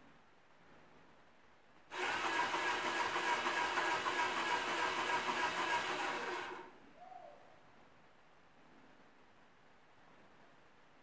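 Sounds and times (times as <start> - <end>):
small motor whirring: 1.9 - 6.7.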